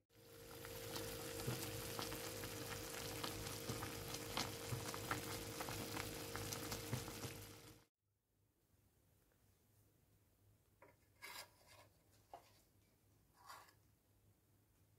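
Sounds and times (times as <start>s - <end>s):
pot sizzling and bubbling: 0.1s - 7.9s.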